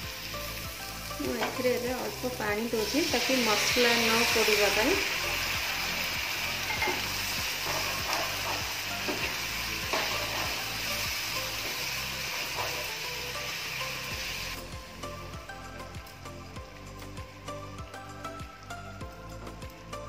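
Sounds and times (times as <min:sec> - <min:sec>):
gravy sizzling: 0:00.0 - 0:20.0
spatula scraping a frying pan: 0:06.6 - 0:10.7.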